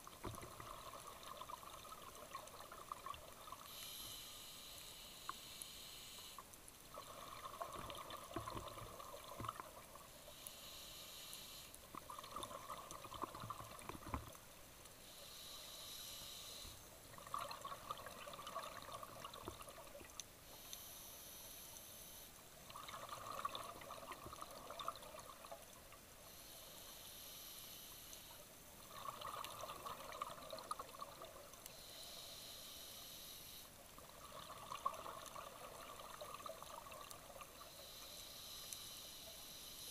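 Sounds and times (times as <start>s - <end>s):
exhaled bubbles underwater: 0.0s - 3.7s, 6.9s - 10.1s, 12.0s - 14.4s, 17.1s - 20.1s, 22.7s - 25.7s, 28.8s - 31.6s, 34.0s - 37.6s
regulator hiss on inhale: 3.4s - 12.1s, 13.2s - 17.0s, 20.4s - 22.5s, 23.5s - 34.0s, 36.1s - 39.9s.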